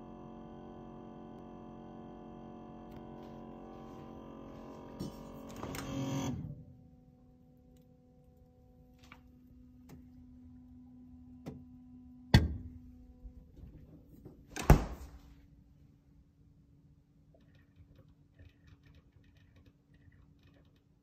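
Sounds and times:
refrigerator humming: 0:00.0 - 0:21.0
loud thunks: 0:14.5 - 0:15.2.

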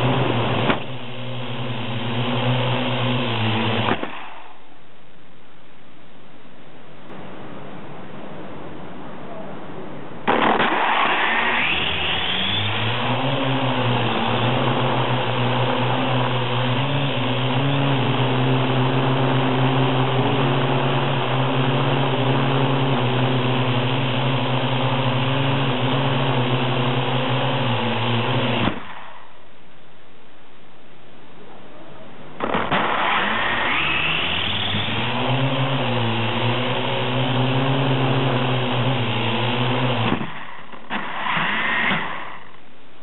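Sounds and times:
drone propellers whining: 0:00.0 - 0:04.3, 0:10.3 - 0:29.0, 0:32.4 - 0:42.2.

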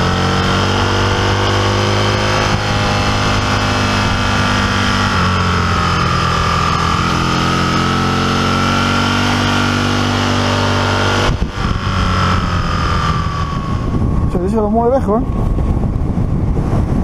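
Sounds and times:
motorcycle engine cruising: 0:00.0 - 0:17.0
wind noise: 0:00.0 - 0:17.0.

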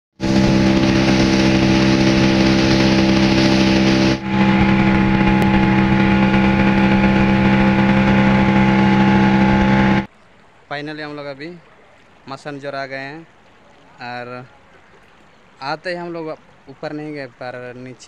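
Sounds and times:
speedboat engine running: 0:00.1 - 0:10.1
water rushing against hull: 0:00.1 - 0:18.0.

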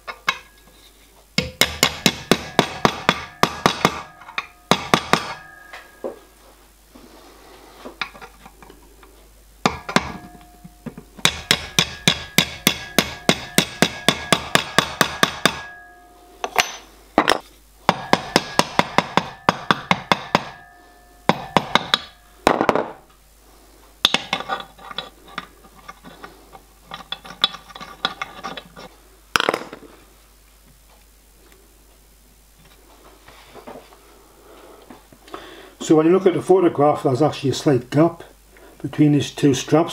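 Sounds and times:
hammer tapping metal: 0:01.4 - 0:06.2, 0:09.6 - 0:22.9.

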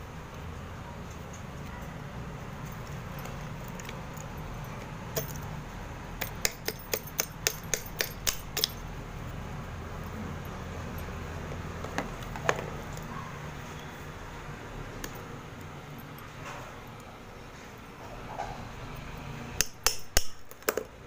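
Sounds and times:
low steady hum: 0:00.0 - 0:21.0
blade cracking dry clay: 0:06.2 - 0:08.8.

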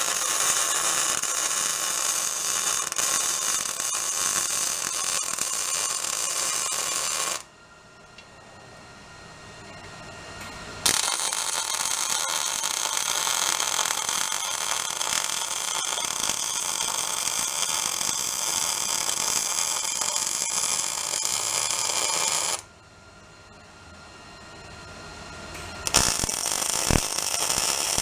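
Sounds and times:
welding arc crackling sizzle: 0:00.0 - 0:07.5, 0:10.8 - 0:22.7, 0:25.8 - 0:28.0.

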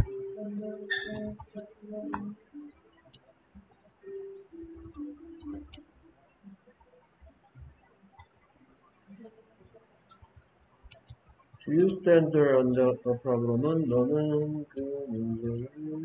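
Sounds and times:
computer keyboard key clicks: 0:00.9 - 0:05.9, 0:10.1 - 0:12.0.

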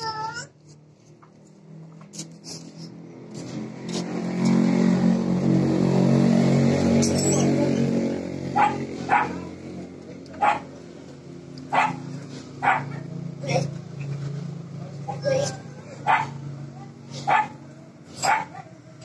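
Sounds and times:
dog barking sharply: 0:08.6 - 0:09.4, 0:10.4 - 0:10.7, 0:11.7 - 0:13.1, 0:16.0 - 0:16.4, 0:17.2 - 0:17.6, 0:18.2 - 0:18.6.

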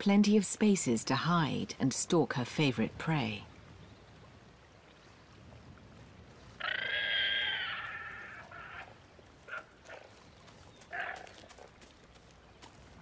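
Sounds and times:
high-pitched animal call: 0:06.6 - 0:08.9
short sharp animal calls: 0:06.6 - 0:08.9.

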